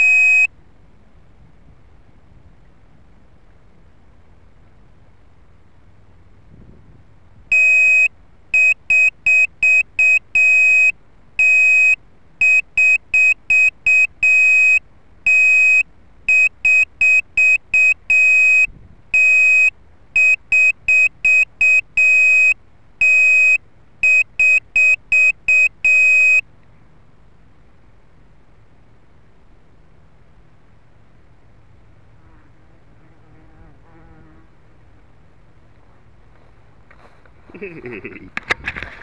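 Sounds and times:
electronic beeper alarm: 0.0s - 0.5s, 7.5s - 26.4s.

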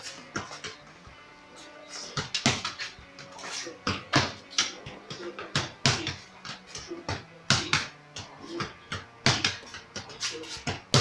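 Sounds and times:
football thudding against wall: 2.2s - 2.8s, 3.8s - 4.4s, 5.1s - 11.0s.

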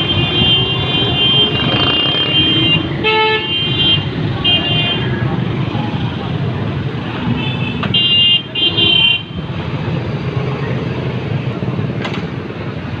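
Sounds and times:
vehicle horn honking: 0.0s - 5.1s
street traffic: 0.0s - 13.0s.

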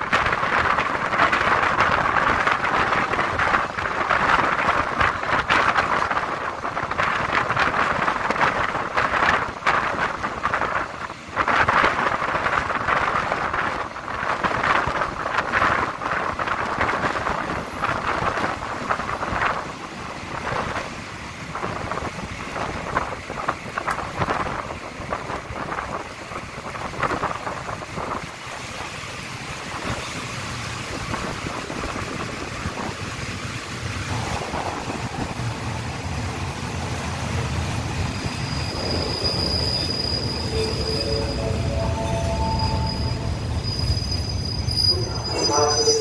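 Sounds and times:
train running rumble: 0.0s - 46.0s
train wheels rattling on rails: 0.0s - 46.0s
high wheel squeal: 38.2s - 46.0s.

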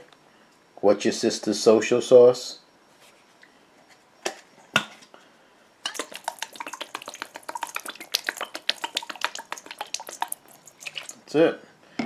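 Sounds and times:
sauce drops pattering on meat: 5.9s - 11.2s.

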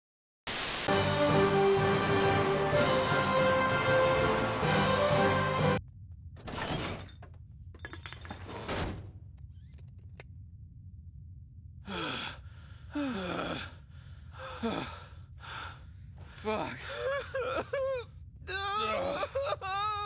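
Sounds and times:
exhausted groans and sighs: 11.8s - 19.4s.

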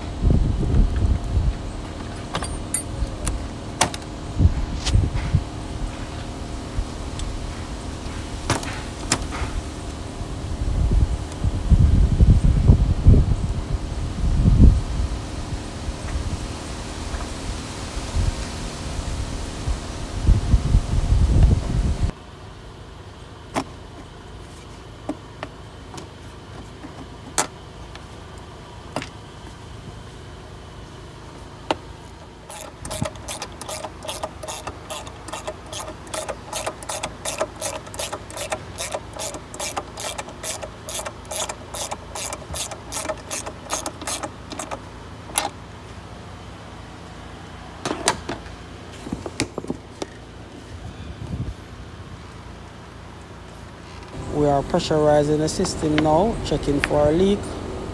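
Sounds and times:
ratchet wrench clicking: 32.5s - 45.6s
tool clicks and knocks: 32.5s - 45.6s.

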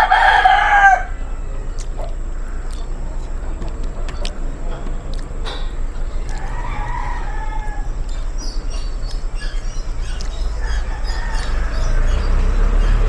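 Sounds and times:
rooster crowing: 0.0s - 2.0s, 6.1s - 13.0s
small birds chirping: 0.0s - 13.0s
steady low rumble: 0.0s - 13.0s.

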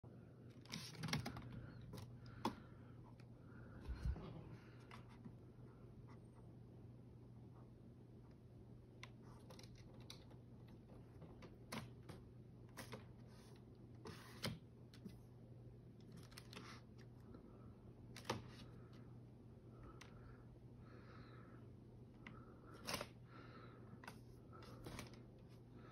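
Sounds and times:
faint steady hum: 0.0s - 25.9s.

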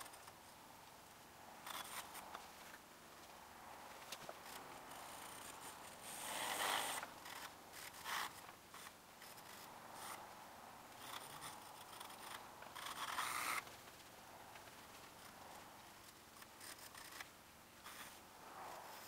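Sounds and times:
pencil scratching on paper: 1.6s - 2.2s, 4.4s - 10.2s, 11.0s - 13.6s, 16.4s - 18.2s.

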